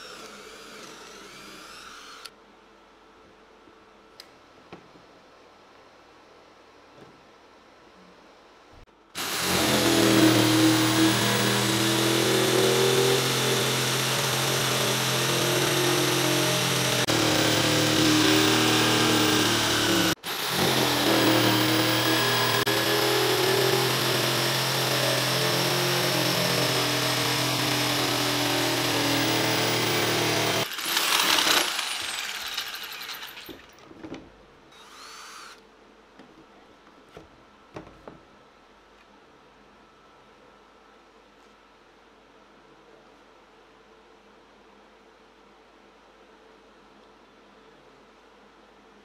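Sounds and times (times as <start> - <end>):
jigsaw cutting wood: 0.0 - 2.3, 9.2 - 33.7, 34.8 - 35.6.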